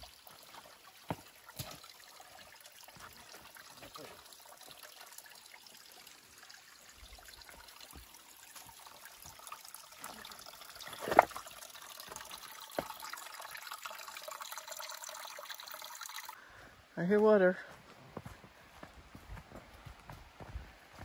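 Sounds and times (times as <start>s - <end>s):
water trickling: 0.0s - 16.4s.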